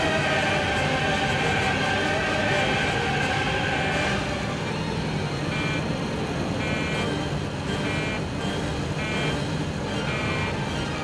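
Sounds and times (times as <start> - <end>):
warning alarm beeping: 6.6 - 8.3, 8.9 - 10.6.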